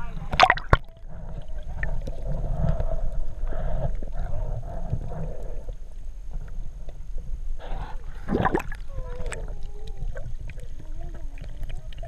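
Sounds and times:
muffled underwater murmur: 7.6s - 12.0s.

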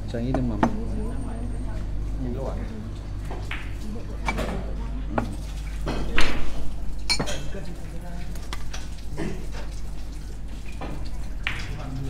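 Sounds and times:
cutlery and dishes clinking: 7.1s - 7.5s.

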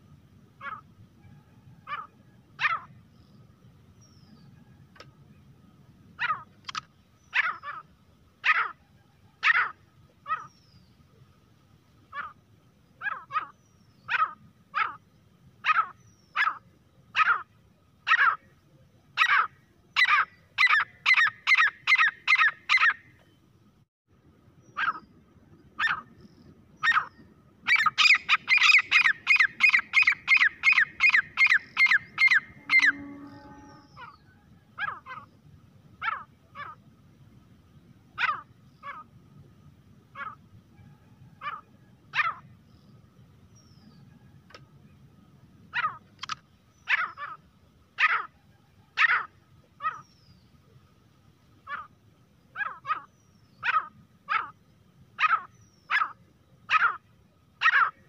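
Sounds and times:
bird calling sharp notes: 26.8s - 35.3s.

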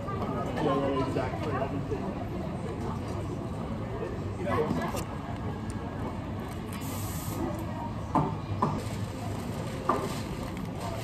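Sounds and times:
brief hiss: 6.8s - 7.5s.

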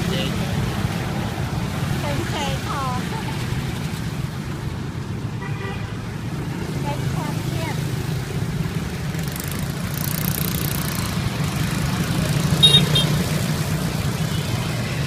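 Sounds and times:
vehicle engine idling: 8.9s - 13.1s.

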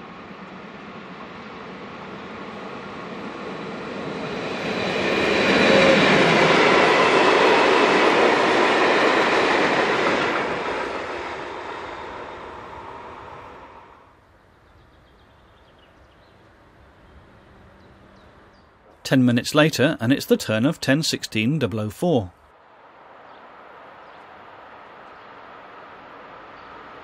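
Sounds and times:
rush of wheels on rail: 0.0s - 14.1s
freight train passing: 0.0s - 27.0s.

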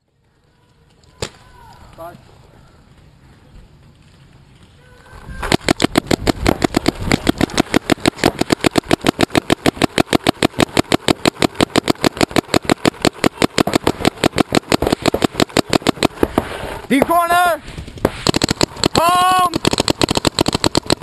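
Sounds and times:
paintball marker firing rapidly: 5.4s - 17.4s, 18.0s - 21.0s.

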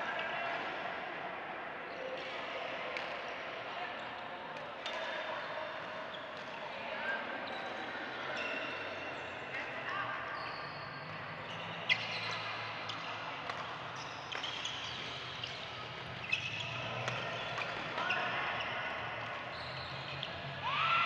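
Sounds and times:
racket hitting shuttlecock: 12.9s - 15.0s.

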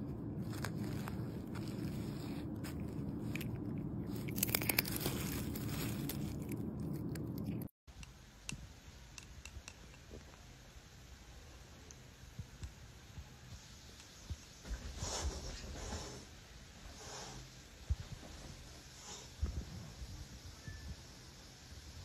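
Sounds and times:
cat crunching a seed: 0.4s - 7.7s.

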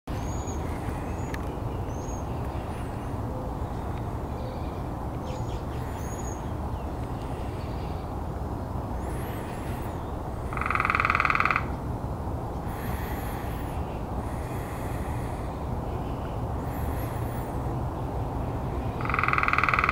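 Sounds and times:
steady low rumble: 0.1s - 19.1s
woodpecker rolling churr call: 9.0s - 11.8s, 19.0s - 19.9s.

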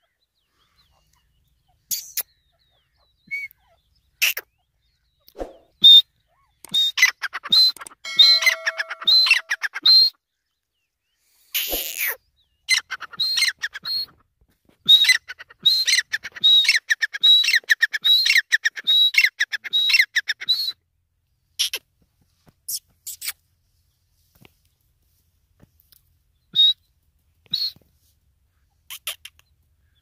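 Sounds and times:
bird calling high-pitched notes: 8.0s - 10.1s.

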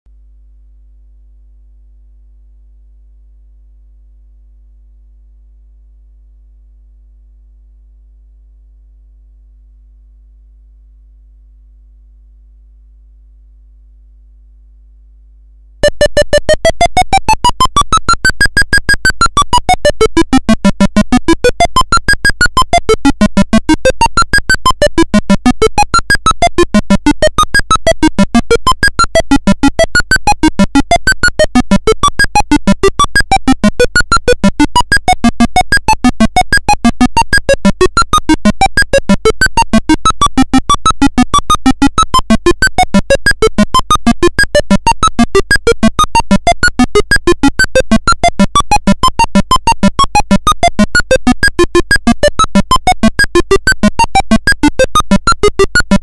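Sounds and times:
electronic music with synthesized notes: 15.8s - 56.0s.

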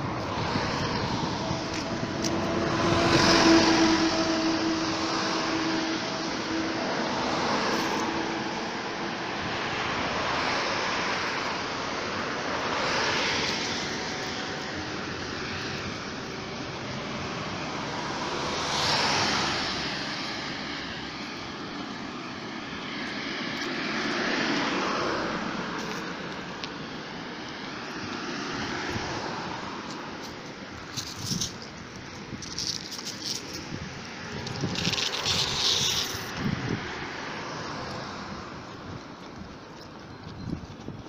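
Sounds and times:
road traffic passing: 0.0s - 41.0s
sharp rustling crackles: 29.8s - 36.6s.

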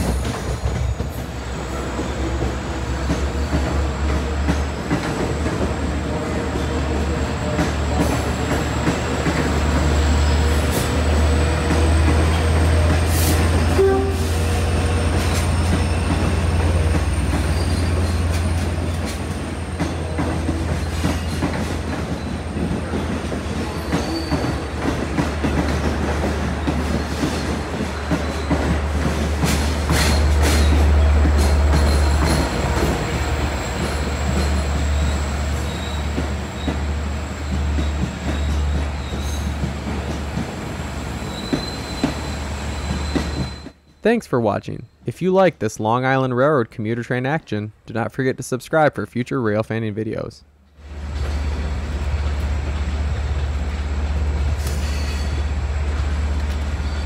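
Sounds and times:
diesel locomotive rumble: 0.0s - 43.8s, 50.8s - 57.0s
high wheel squeal: 13.1s - 23.0s, 23.6s - 24.8s, 31.4s - 40.1s, 41.1s - 44.0s, 54.6s - 55.6s, 56.8s - 57.0s
wheels clacking over track: 14.9s - 40.7s.

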